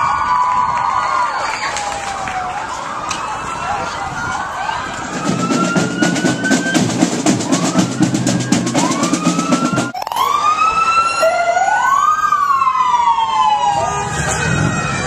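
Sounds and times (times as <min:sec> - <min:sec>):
siren wailing: 0:04.6 - 0:15.0
snare drum roll: 0:05.1 - 0:10.0.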